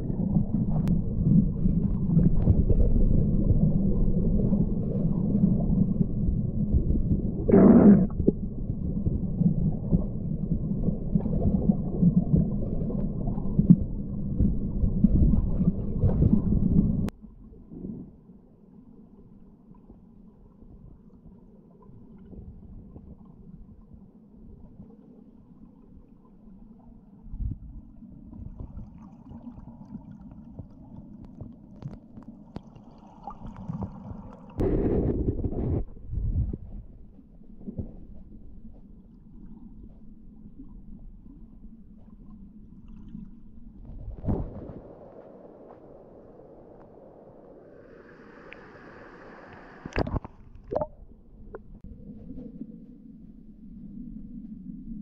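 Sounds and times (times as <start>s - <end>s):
muffled underwater river flow: 0.0s - 55.0s
rush of water: 44.0s - 50.9s.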